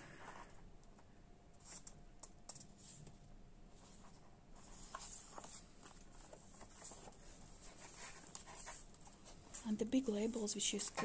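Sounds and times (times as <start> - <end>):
paper sheets rustling: 3.8 - 10.3.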